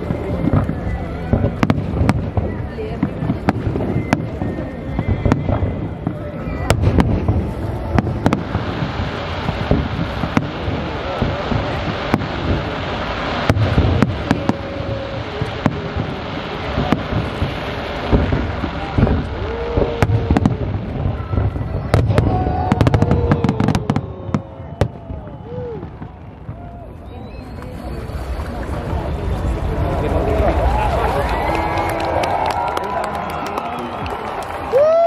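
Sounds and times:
fireworks bursting: 0.0 - 35.0.

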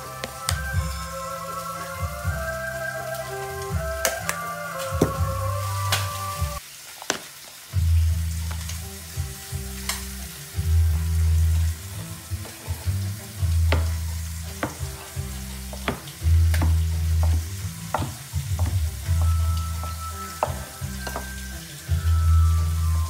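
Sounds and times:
music with heavy bass: 0.0 - 6.6, 7.8 - 23.0
knife chopping on wooden board: 13.7 - 14.0, 14.6 - 18.8.

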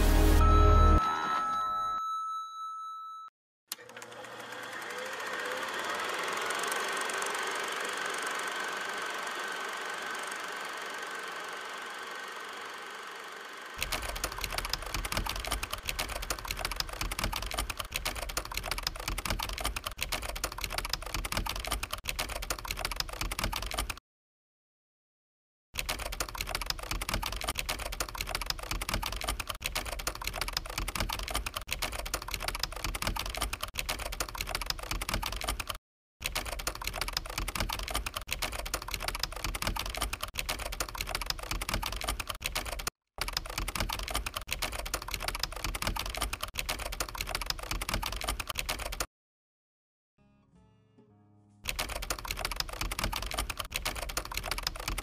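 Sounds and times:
rapid keyboard typing: 13.8 - 24.0, 25.8 - 49.1, 51.7 - 55.0.

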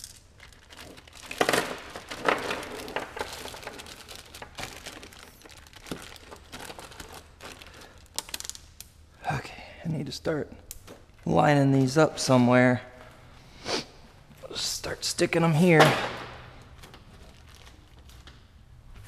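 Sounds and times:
plastic bag crinkling: 0.0 - 8.7, 16.7 - 18.3.

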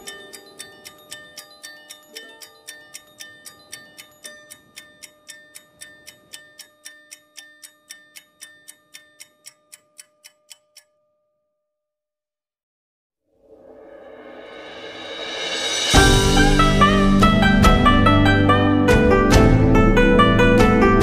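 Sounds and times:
clock-like ticking: 0.0 - 11.0.

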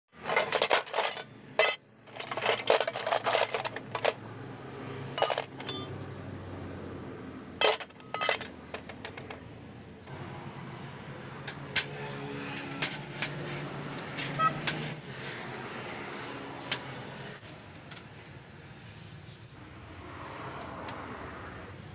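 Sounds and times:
steel scrap clinking in tray: 0.2 - 4.2, 5.2 - 5.9, 7.6 - 9.2.

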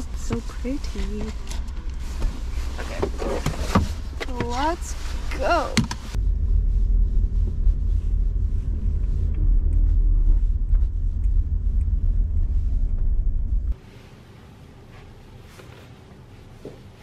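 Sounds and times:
road and engine rumble: 0.0 - 13.9.

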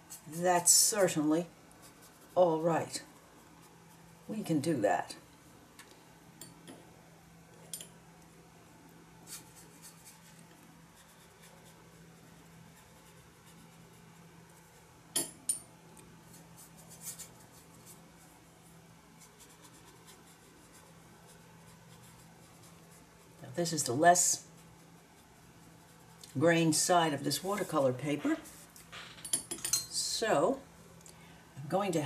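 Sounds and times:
brush in plastic palette: 0.0 - 4.8, 9.2 - 15.1, 15.9 - 28.9
steady low hum: 0.0 - 32.0.

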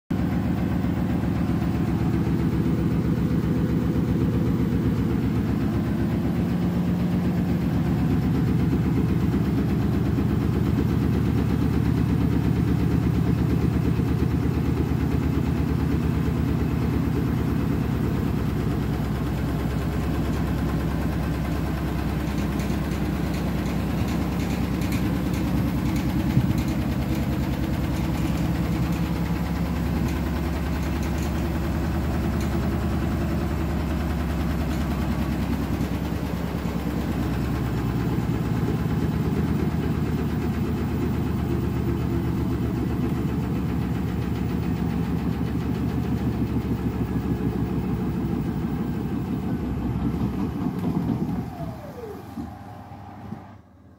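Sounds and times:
washing machine drum rumbling: 0.1 - 52.8.

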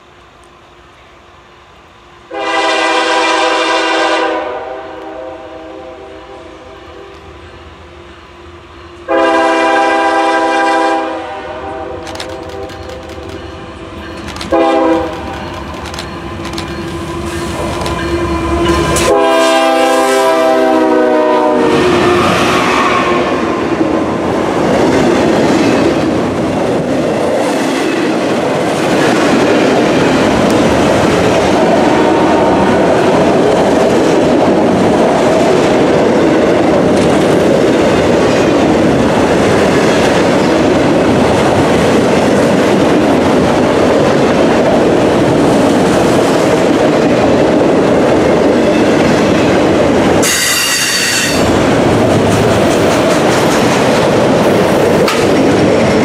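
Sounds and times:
locomotive air horn blowing: 2.3 - 7.2, 9.0 - 12.0, 14.5 - 15.3, 17.5 - 23.6, 50.2 - 51.5
train cars rumbling and clacking: 6.8 - 56.0.

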